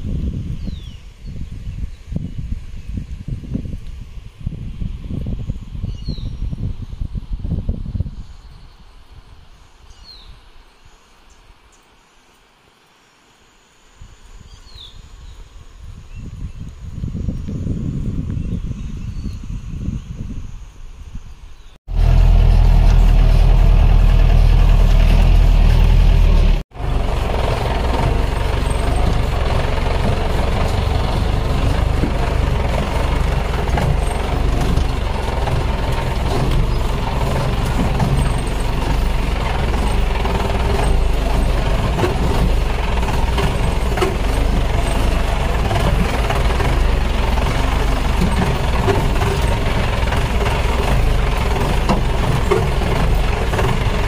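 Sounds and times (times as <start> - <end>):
heavy low rumble: 21.9 - 54.0
jeep engine running: 21.9 - 54.0
vehicle body knocking and rattling: 21.9 - 54.0.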